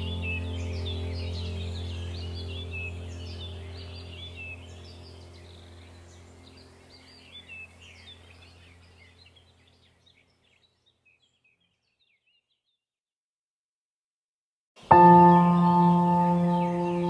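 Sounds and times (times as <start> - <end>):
low steady hum: 0.0 - 10.4
small birds chirping: 0.0 - 12.9, 14.8 - 17.0.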